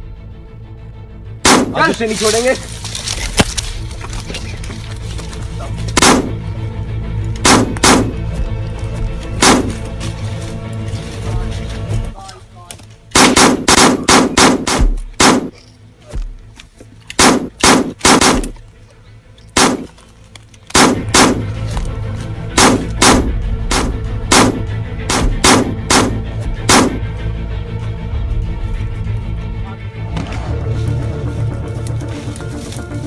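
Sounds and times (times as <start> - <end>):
background music: 0.0 - 33.0
handgun shots: 1.5 - 2.0, 6.0 - 6.4, 7.4 - 8.2, 9.4 - 9.8, 13.2 - 15.6, 17.2 - 18.6, 19.6 - 19.9, 20.7 - 21.5, 22.5 - 27.0.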